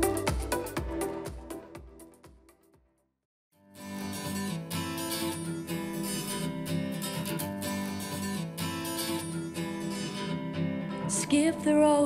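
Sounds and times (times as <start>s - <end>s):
strummed acoustic guitar chords: 3.6s - 11.9s.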